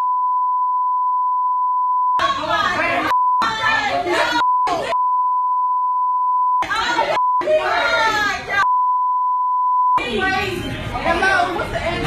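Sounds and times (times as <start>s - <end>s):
censor bleep: 0.0s - 2.2s, 3.1s - 3.5s, 4.4s - 7.5s, 8.6s - 10.0s
raised voices in a scuffle: 2.2s - 5.0s, 6.6s - 8.7s.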